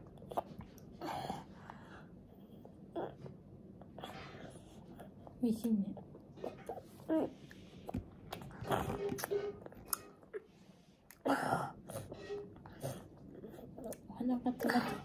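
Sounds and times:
toddler chewing: 0.0s - 1.5s, 6.4s - 15.0s.

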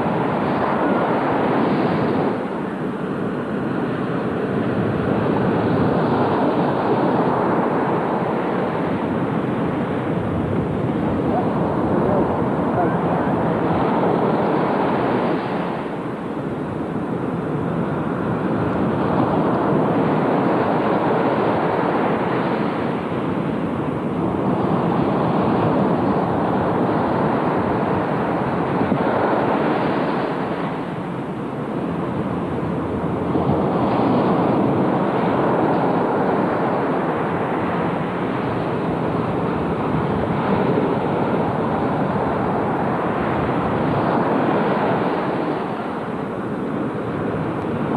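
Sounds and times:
ocean surf breaking: 0.0s - 47.9s
wind on microphone: 0.0s - 47.9s.

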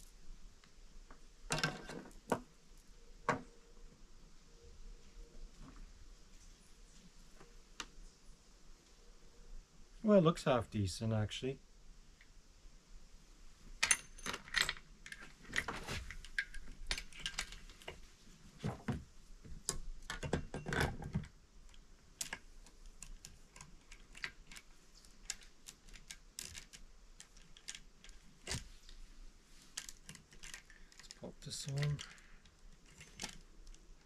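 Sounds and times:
saw chain clinking and rattling: 32.8s - 33.4s.

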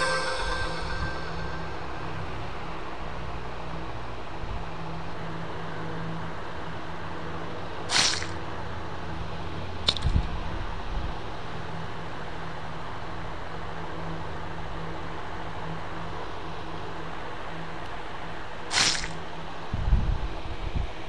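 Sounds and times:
background hum: 0.0s - 21.0s
sharp click: 7.9s - 8.4s, 9.8s - 10.3s, 18.7s - 19.2s
short squelch: 7.9s - 8.4s, 18.7s - 19.2s.

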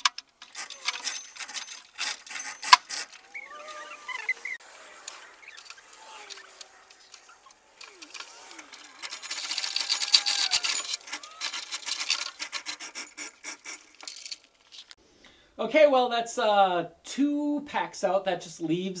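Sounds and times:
chain rattling through hoist: 0.0s - 15.0s.

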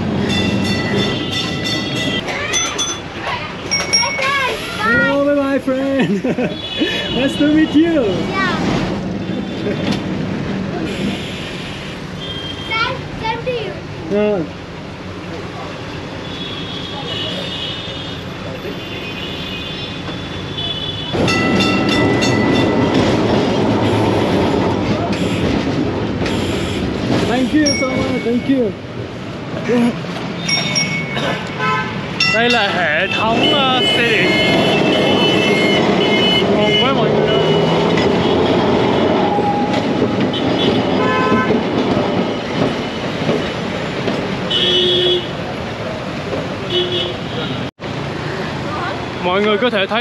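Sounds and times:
tram rattling on rails: 0.0s - 11.7s, 21.1s - 46.9s
traffic noise: 0.0s - 50.0s
vehicle horn: 25.1s - 25.6s, 33.0s - 39.1s, 40.3s - 41.6s, 44.5s - 45.4s, 46.7s - 47.7s.

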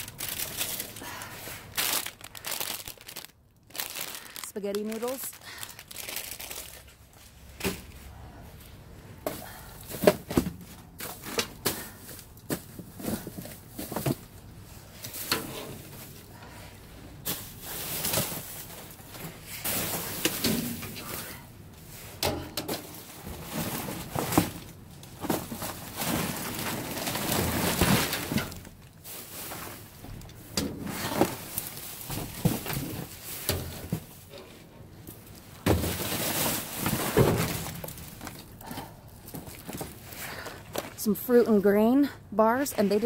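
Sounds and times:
plastic bags rustling: 0.0s - 8.4s, 9.3s - 22.2s, 22.8s - 41.1s
boxes knocking and thumping: 9.2s - 14.4s, 22.2s - 28.6s, 30.6s - 34.2s, 35.6s - 38.4s.

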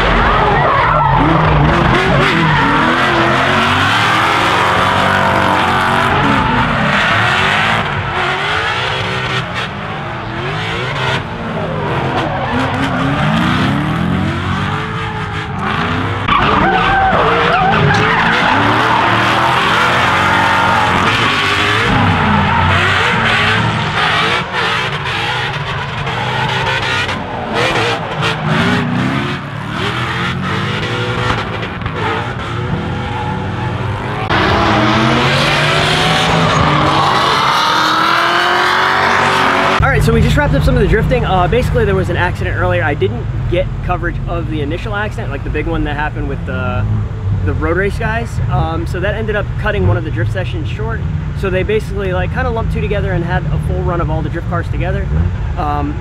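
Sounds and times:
car engines revving: 0.0s - 56.0s
tyres squealing: 11.7s - 31.3s.

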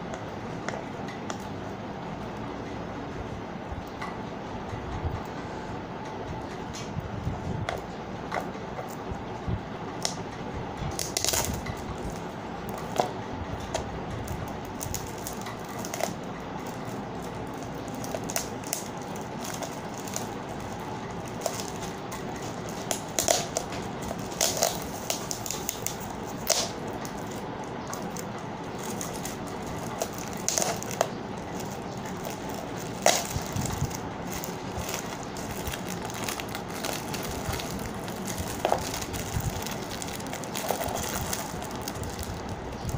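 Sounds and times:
foil gift wrap crinkling: 10.9s - 13.1s, 14.2s - 42.9s.

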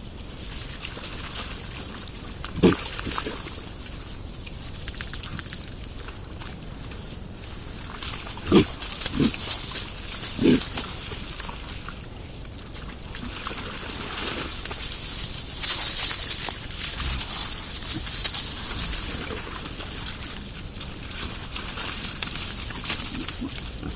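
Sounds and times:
rustle of leaf litter and mud: 0.0s - 23.9s
wild boar grunting: 2.4s - 3.6s, 8.2s - 11.0s, 16.8s - 20.5s, 22.6s - 23.9s.

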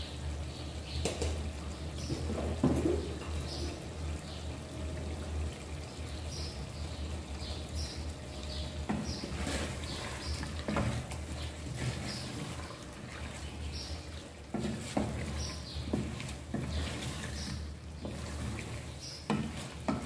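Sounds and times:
spoon stirring and scraping pot: 8.9s - 20.0s.

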